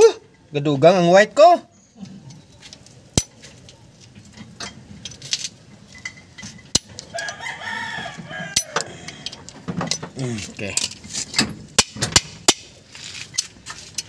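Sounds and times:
rooster crowing: 7.1s - 9.5s.

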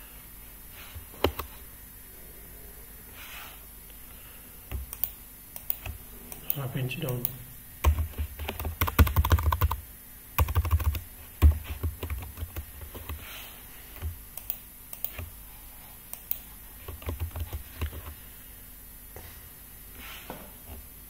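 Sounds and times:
computer keyboard typing: 1.2s - 1.5s, 4.7s - 9.8s, 10.4s - 13.2s, 14.0s - 15.3s, 16.2s - 18.2s.

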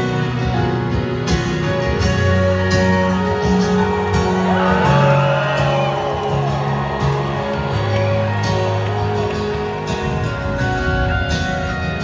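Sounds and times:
electric guitar: 0.0s - 12.0s
strummed acoustic guitar: 0.0s - 12.0s
bass notes: 1.9s - 12.0s
crowd shouting: 3.9s - 10.4s
person singing: 4.3s - 6.6s.

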